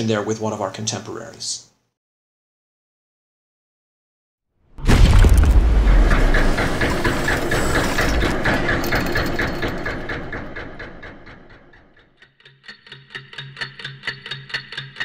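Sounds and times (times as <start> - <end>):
clockwork gears whirring and clicking: 6.0 - 11.8.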